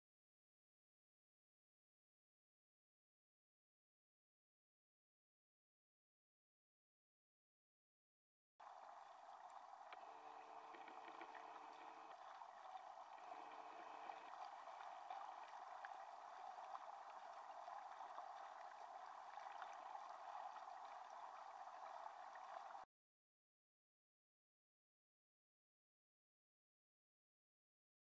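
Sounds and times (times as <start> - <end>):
stream water rushing underwater: 8.6 - 22.8.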